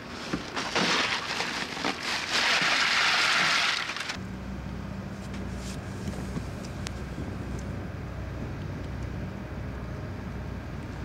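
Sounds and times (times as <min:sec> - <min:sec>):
steady low hum: 0:00.0 - 0:11.0
ice cubes crunching and rattling: 0:00.3 - 0:04.2.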